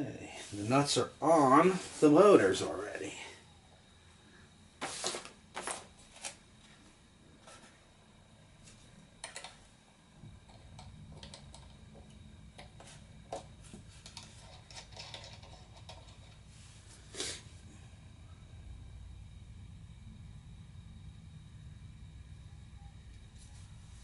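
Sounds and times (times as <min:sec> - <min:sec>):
faint low hum: 0:00.0 - 0:24.0
clicks and rustles of plastic parts: 0:12.6 - 0:16.4.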